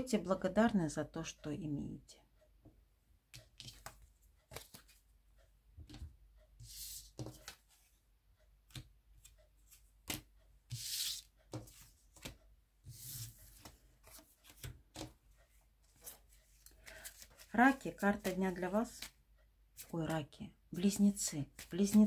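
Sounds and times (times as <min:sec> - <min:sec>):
cards clicking and tapping: 0:03.4 - 0:05.0, 0:07.0 - 0:07.7, 0:08.6 - 0:12.4, 0:13.5 - 0:15.2, 0:21.1 - 0:22.0
cards rustling swishes: 0:03.6 - 0:05.0, 0:15.9 - 0:19.2, 0:21.4 - 0:22.0.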